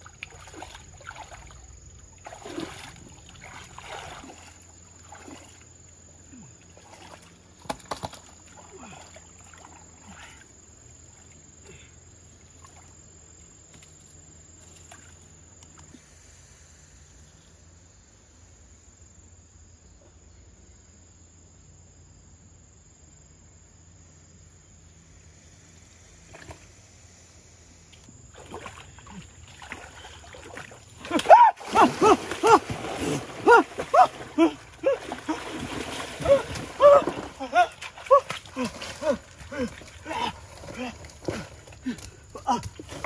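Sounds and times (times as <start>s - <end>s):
hands splashing in muddy water: 2.2s - 5.6s, 28.3s - 43.0s.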